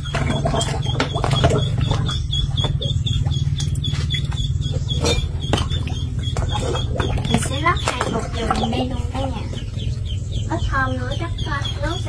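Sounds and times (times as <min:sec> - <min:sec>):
high chirp: 0:00.0 - 0:12.0
steady low hum: 0:00.0 - 0:12.0.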